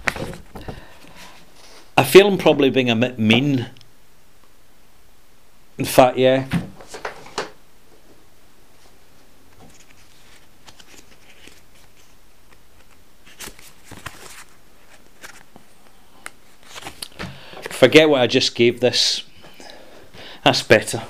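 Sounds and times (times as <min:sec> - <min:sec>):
paper card rustling: 0:09.5 - 0:17.8.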